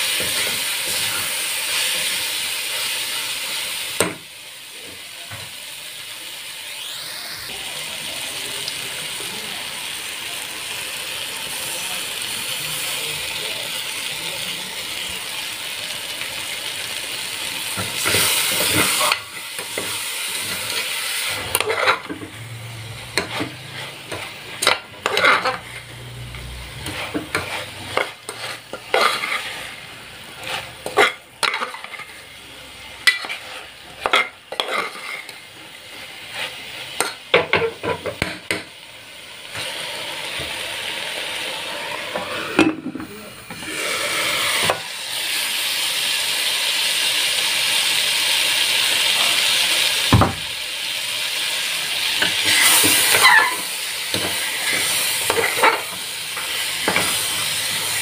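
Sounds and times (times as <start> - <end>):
food sizzling in a pot: 0.0 - 58.0
metal spoon scraping a pot: 18.0 - 22.3, 23.1 - 32.2, 33.0 - 35.4, 52.2 - 57.2.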